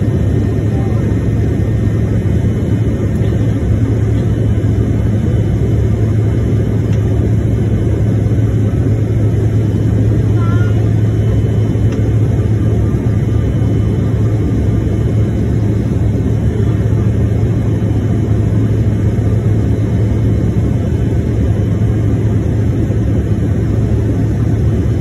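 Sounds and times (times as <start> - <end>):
jet airliner cabin drone: 0.0 - 25.0
low hum: 0.0 - 25.0.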